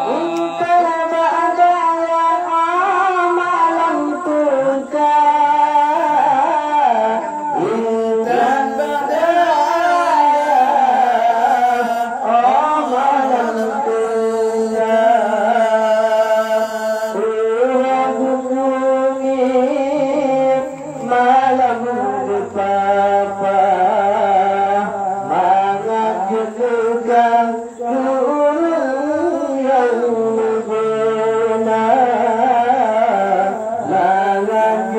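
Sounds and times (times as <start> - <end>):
man singing into microphone: 0.0 - 34.9.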